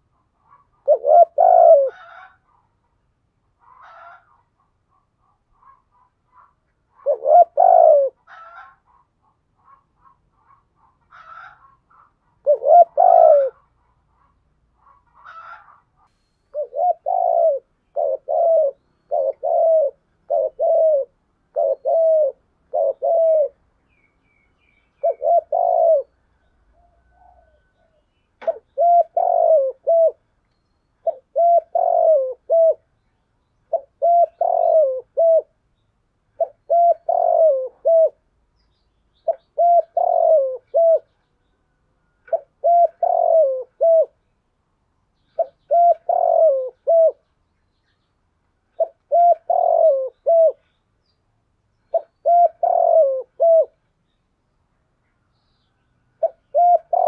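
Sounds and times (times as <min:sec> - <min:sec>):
dove cooing: 0:00.0 - 0:02.6, 0:03.6 - 0:23.7, 0:24.7 - 0:30.3, 0:31.0 - 0:32.9, 0:33.7 - 0:35.6, 0:36.3 - 0:38.3, 0:39.2 - 0:41.2, 0:42.1 - 0:44.2, 0:45.2 - 0:47.3, 0:48.7 - 0:50.8, 0:51.9 - 0:53.8, 0:56.2 - 0:57.0.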